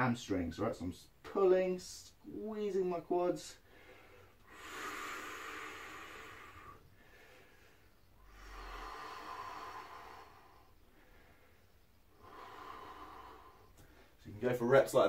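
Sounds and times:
man breathing slowly: 3.6s - 14.2s.

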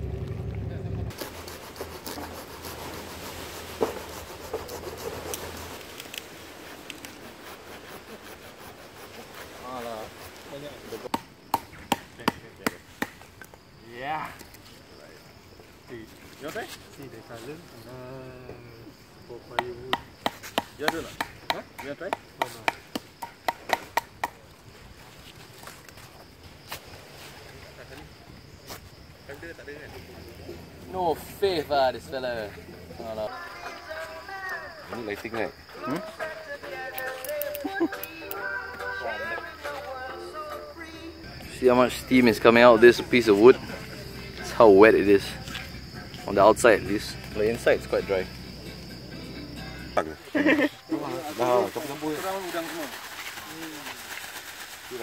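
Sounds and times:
metal blade scraping a log: 1.2s - 5.8s.

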